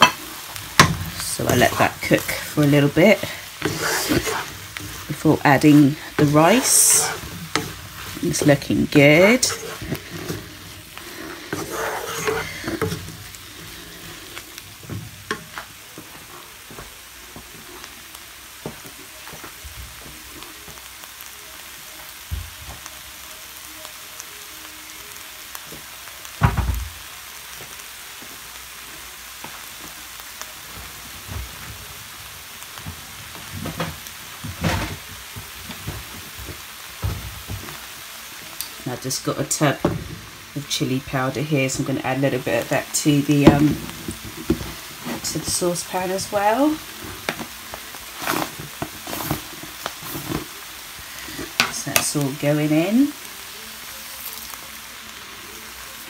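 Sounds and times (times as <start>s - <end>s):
wooden spoon scraping a pan: 0.0s - 16.5s, 41.6s - 50.6s
food sizzling in a frying pan: 0.0s - 56.0s.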